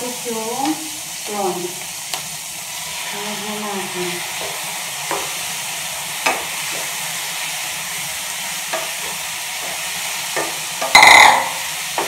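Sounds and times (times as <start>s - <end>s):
prawns sizzling in hot oil: 0.0s - 12.0s
sharp metallic knock: 10.9s - 11.6s.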